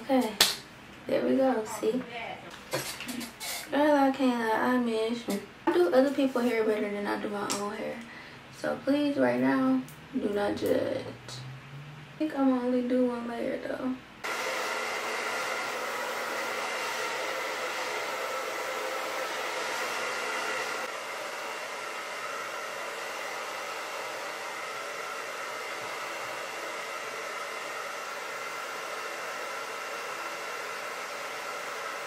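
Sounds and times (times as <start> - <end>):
hair dryer blowing: 14.2 - 32.0.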